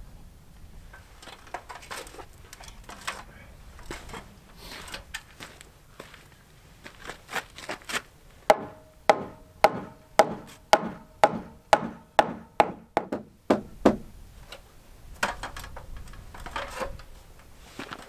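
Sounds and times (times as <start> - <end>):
ringing hammer blows: 8.5 - 12.8.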